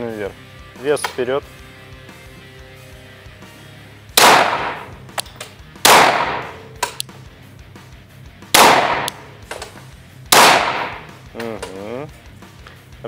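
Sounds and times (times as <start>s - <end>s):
pistol shots with ringing echo: 4.2s - 7.0s, 8.6s - 9.6s, 10.3s - 11.2s.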